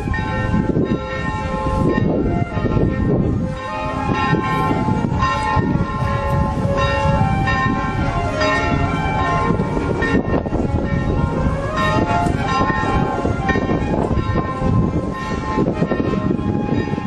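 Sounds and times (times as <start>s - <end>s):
church bells ringing: 0.0s - 17.0s
steady low rumble: 0.0s - 17.0s.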